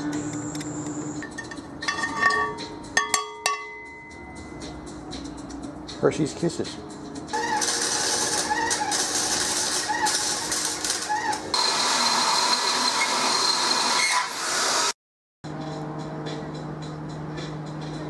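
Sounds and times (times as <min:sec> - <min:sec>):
arc welding hiss: 0:07.4 - 0:12.7.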